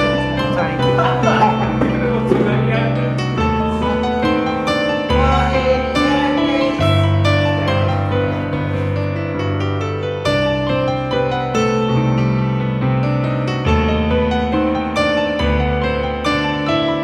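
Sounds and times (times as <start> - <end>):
low held bass notes: 0.0 - 9.7
piano background music: 0.0 - 17.0.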